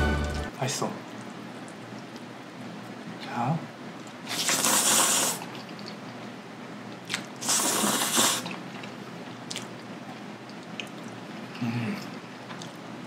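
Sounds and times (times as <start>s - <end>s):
person slurping noodles: 4.3s - 5.6s, 7.1s - 8.9s
person chewing: 7.0s - 12.9s.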